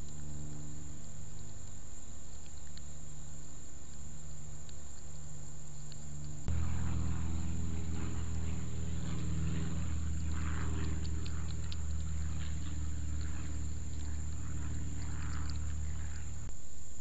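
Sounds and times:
faint clicks: 0:01.3 - 0:06.5
motor drone: 0:05.9 - 0:16.5.

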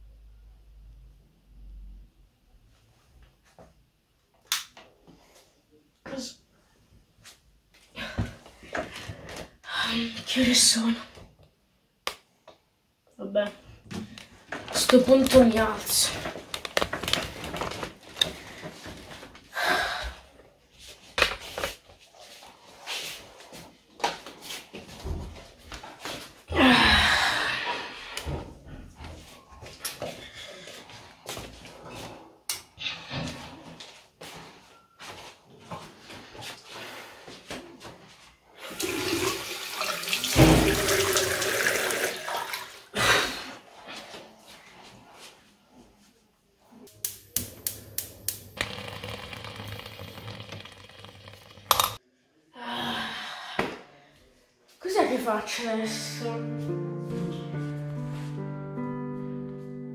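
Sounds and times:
tap running with water splashing: 0:38.6 - 0:42.7, 0:48.2 - 0:52.0.

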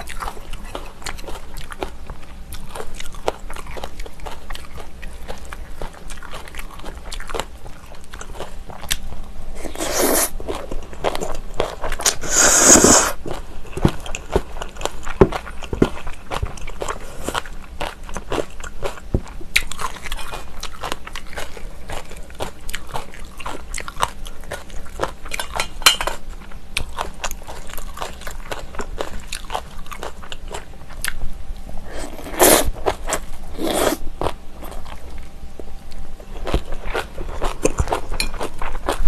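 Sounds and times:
crunchy chewing: 0:00.0 - 0:39.0
drawn-out mouth sounds: 0:12.0 - 0:13.2.

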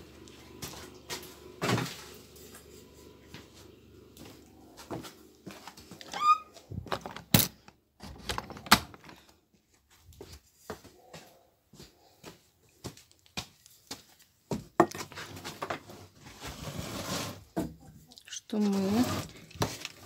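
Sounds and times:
short rising squeak: 0:06.0 - 0:06.6
footsteps on wooden boards: 0:09.5 - 0:15.8.

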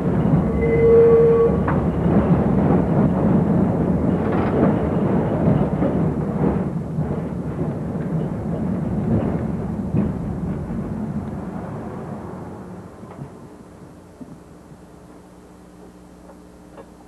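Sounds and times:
streetcar rumble and rattle: 0:00.0 - 0:17.0.

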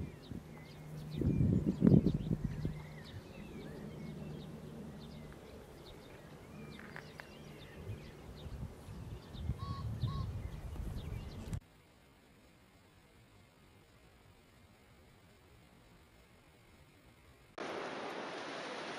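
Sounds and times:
birds chirping: 0:00.0 - 0:11.6.

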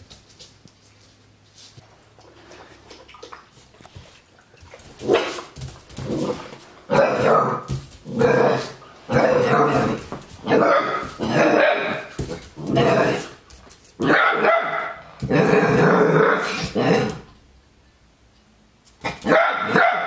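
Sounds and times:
puppy barking: 0:10.5 - 0:12.1, 0:14.0 - 0:15.0, 0:19.2 - 0:20.0.

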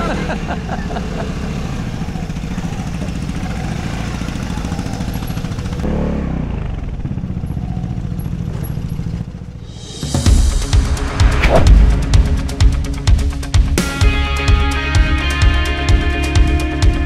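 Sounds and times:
scooter engine running: 0:00.0 - 0:09.8.

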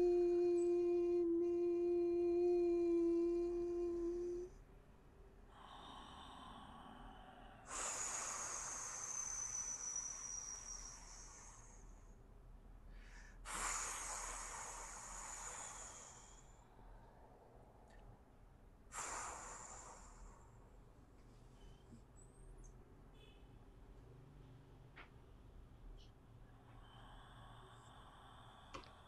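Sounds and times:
soft breath: 0:00.0 - 0:04.7, 0:05.3 - 0:23.5, 0:25.9 - 0:29.0
steady hummed tone: 0:00.0 - 0:12.2.

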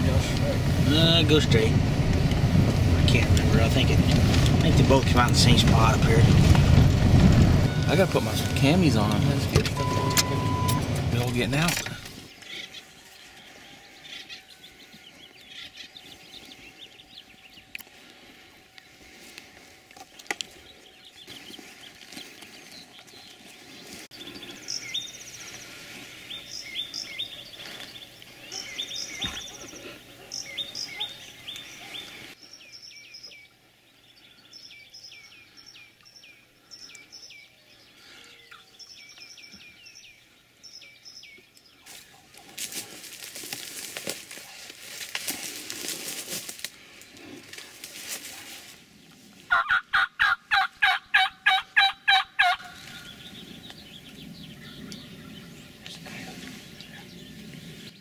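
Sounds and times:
small songbirds chirping: 0:07.7 - 0:45.8, 0:50.8 - 0:58.0
broad rustling noise: 0:41.9 - 0:49.5.

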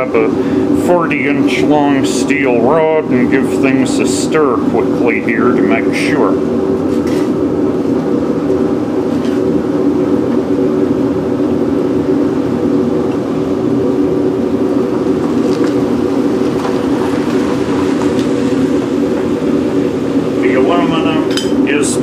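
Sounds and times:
propane burner roaring: 0:00.0 - 0:22.0.

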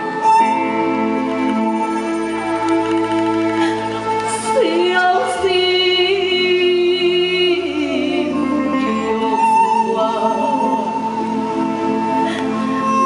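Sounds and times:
instrumental accompaniment: 0:00.0 - 0:13.0
woman singing with vibrato: 0:04.3 - 0:11.2.

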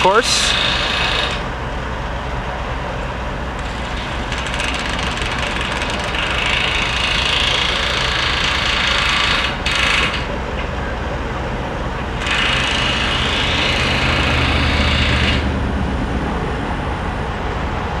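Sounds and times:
power tool whirring: 0:00.0 - 0:01.5, 0:03.6 - 0:10.3, 0:12.2 - 0:15.5
heavy machinery engine idling: 0:00.0 - 0:18.0.

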